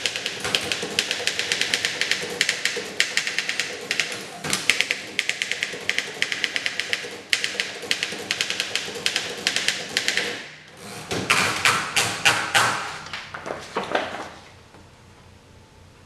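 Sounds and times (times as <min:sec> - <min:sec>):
manual typewriter typing: 0:00.0 - 0:10.4
typewriter clunks: 0:00.0 - 0:10.4
paper rustling: 0:13.1 - 0:14.5.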